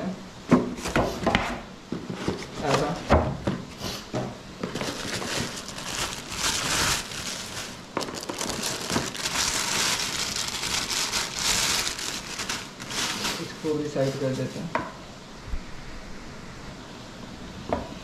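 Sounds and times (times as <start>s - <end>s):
plastic packaging crinkling: 4.6s - 14.7s.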